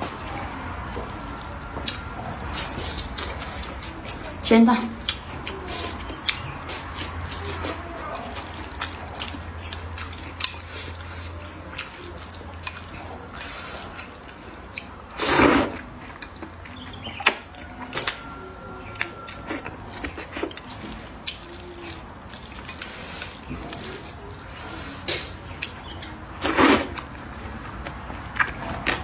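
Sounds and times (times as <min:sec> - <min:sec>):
wet chewing: 0:00.0 - 0:29.0
slurping noodles: 0:15.1 - 0:15.9, 0:26.3 - 0:27.5.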